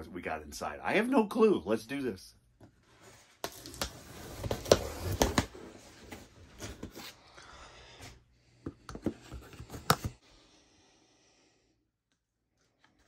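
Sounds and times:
tool scraping cardboard box: 3.0 - 7.2.

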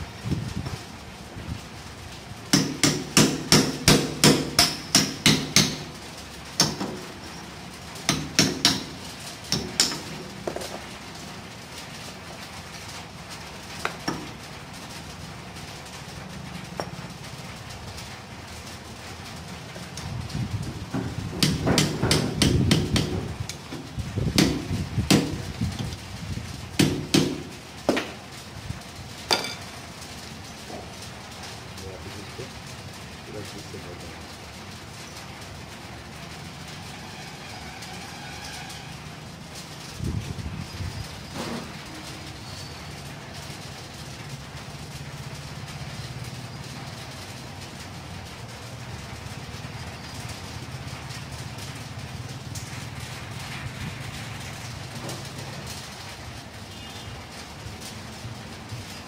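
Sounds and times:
hammer tapping on metal: 2.5 - 5.9, 6.6 - 7.0, 8.1 - 10.7, 20.9 - 23.6, 24.4 - 25.4, 26.8 - 28.1.

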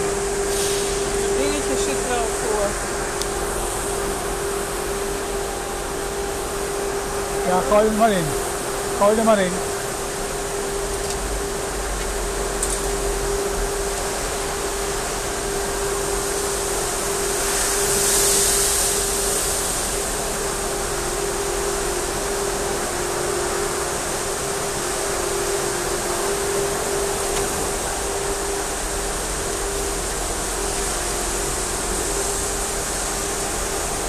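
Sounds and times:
machine hiss: 0.0 - 5.7, 14.4 - 34.0
machinery whirring: 0.0 - 18.2
constant machine hum: 0.0 - 34.0.

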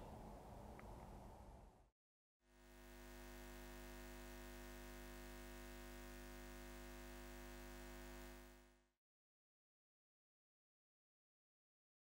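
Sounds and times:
faint electric hum: 2.5 - 8.9.

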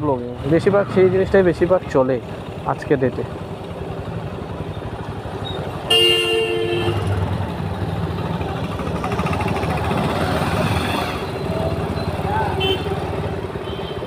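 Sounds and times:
motorcycle engine: 0.0 - 14.0
road noise: 0.0 - 14.0
vehicle horn: 5.9 - 7.2, 12.5 - 13.0, 13.6 - 14.0.

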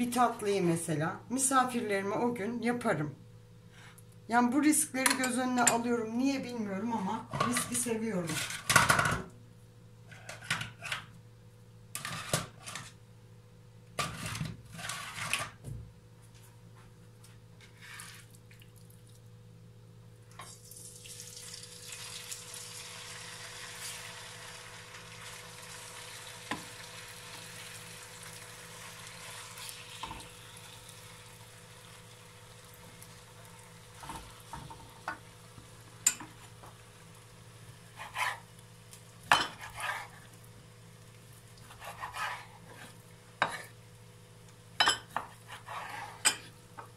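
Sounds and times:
chicken sizzling in hot oil: 20.5 - 41.6.

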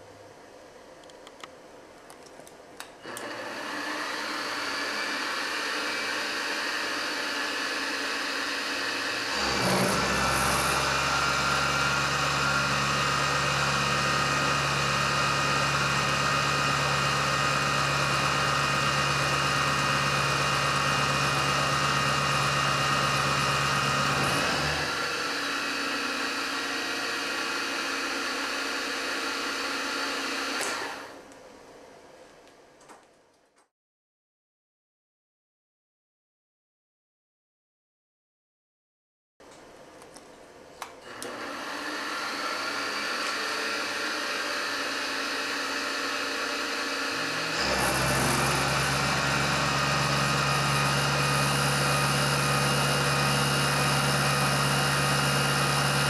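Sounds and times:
end mill cutting metal: 3.0 - 31.2, 41.0 - 56.0
mill spindle whine: 3.0 - 31.9, 41.0 - 56.0.

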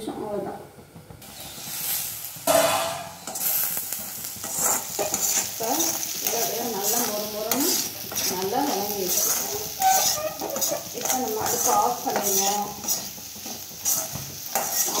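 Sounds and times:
potatoes sizzling in pan: 1.2 - 15.0
metal lid clanging: 2.5 - 3.4
spatula scraping metal pan: 4.3 - 15.0.

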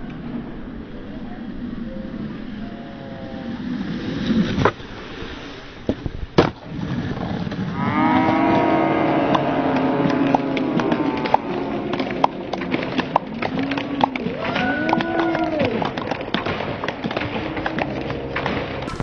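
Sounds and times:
long drawn-out voice-like call: 0.0 - 4.2, 7.8 - 12.5
skateboard wheels rolling on concrete: 0.0 - 19.0
skateboard clacks: 5.8 - 8.6, 9.3 - 19.0.

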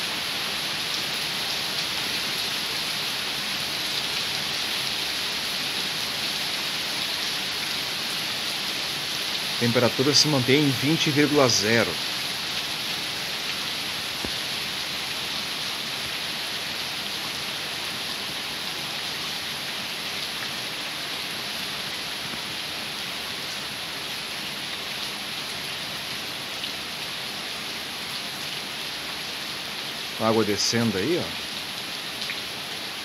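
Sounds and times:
heavy rain on pavement: 0.0 - 33.0.

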